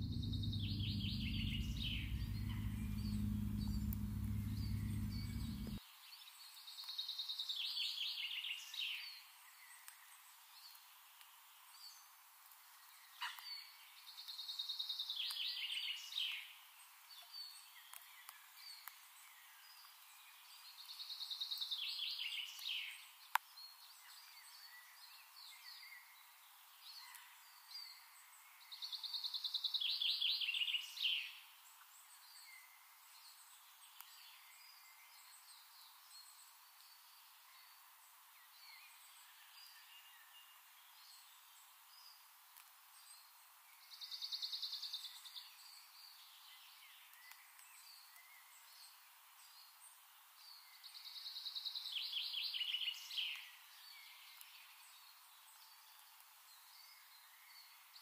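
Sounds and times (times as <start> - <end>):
songbird trilling: 0.0 - 5.8
faint outdoor background: 0.0 - 58.0.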